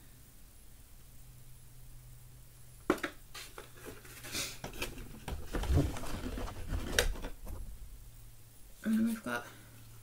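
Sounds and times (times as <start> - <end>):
rustling and scraping: 2.9 - 7.7.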